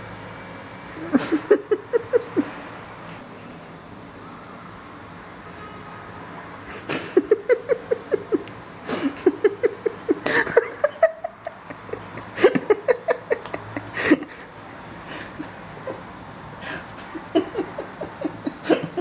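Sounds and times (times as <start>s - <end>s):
person giggling: 1.0s - 2.6s, 6.7s - 14.5s, 15.1s - 19.0s.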